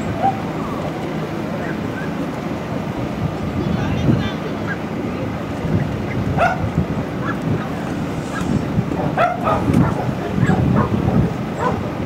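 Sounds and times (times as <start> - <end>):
outdoor background noise: 0.0 - 12.0
dog barking: 6.4 - 6.6, 9.2 - 11.8.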